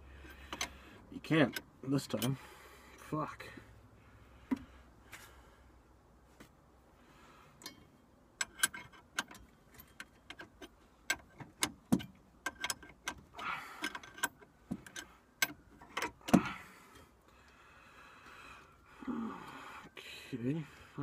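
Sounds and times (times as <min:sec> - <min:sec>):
wrench clinking on metal: 0:08.4 - 0:13.2.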